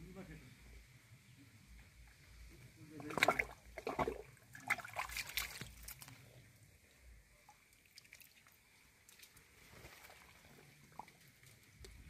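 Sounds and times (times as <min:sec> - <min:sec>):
mud squelching: 0:03.0 - 0:06.2
muddy water sloshing: 0:03.0 - 0:06.2, 0:07.6 - 0:12.0.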